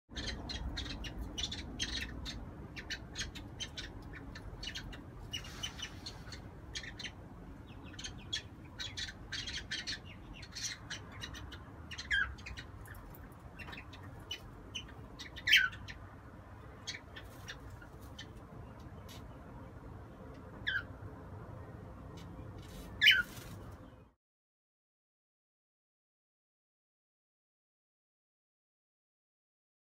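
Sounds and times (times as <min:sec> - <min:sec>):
cockatiels chirping: 0:00.1 - 0:16.1, 0:16.8 - 0:19.3, 0:20.6 - 0:20.9, 0:22.7 - 0:23.6.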